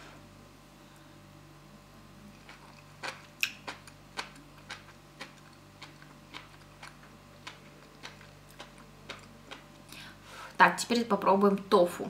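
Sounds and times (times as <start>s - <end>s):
faint chewing clicks: 2.3s - 10.0s.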